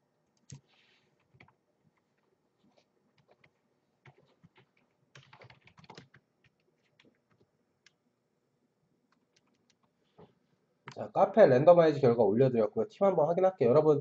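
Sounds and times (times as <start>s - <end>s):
faint keyboard typing: 0.2s - 8.0s, 9.1s - 11.1s.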